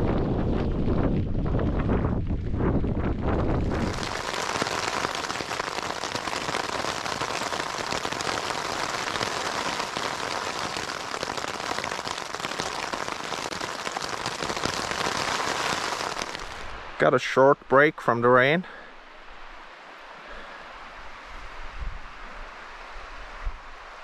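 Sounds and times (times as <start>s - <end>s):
low wind rumble: 0.0s - 8.5s, 18.9s - 24.0s
heavy rain on tent: 0.0s - 17.1s.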